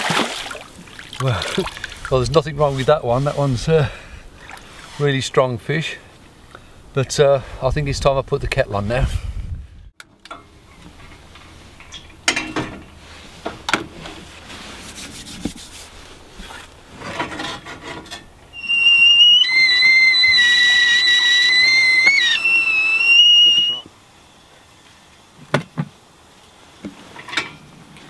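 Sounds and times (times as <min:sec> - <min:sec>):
kettle whistling: 0:18.5 - 0:23.9.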